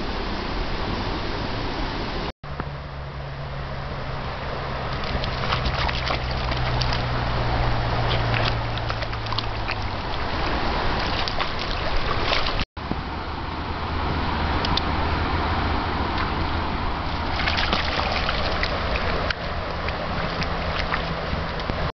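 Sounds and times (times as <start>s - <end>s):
stream rushing over stones: 3.9s - 21.9s
paws splashing in water: 4.5s - 12.7s, 16.0s - 21.9s.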